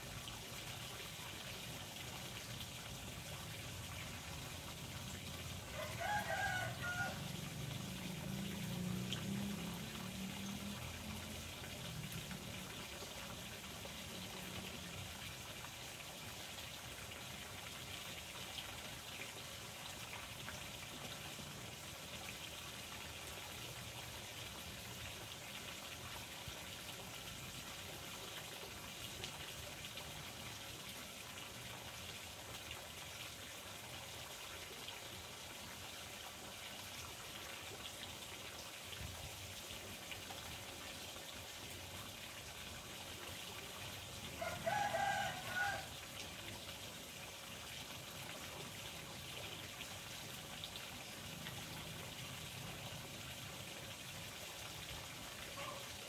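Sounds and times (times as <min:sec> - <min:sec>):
water trickling: 0:00.0 - 0:56.0
rooster crowing: 0:05.7 - 0:07.3, 0:44.4 - 0:45.9.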